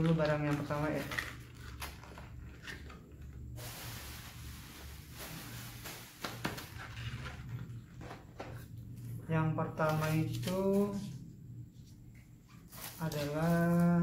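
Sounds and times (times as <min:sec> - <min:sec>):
scraping rustle: 0:12.5 - 0:14.0.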